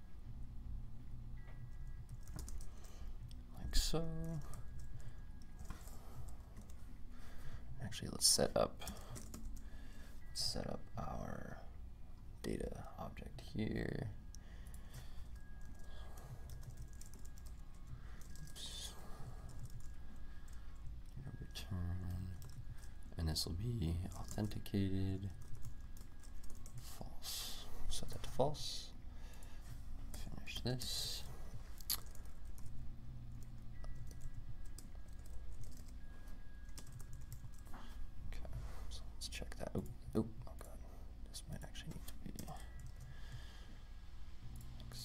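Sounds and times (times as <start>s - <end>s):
keyboard typing: 1.5s - 6.8s, 8.8s - 9.7s, 14.3s - 28.4s, 31.8s - 38.5s, 41.7s - 43.5s.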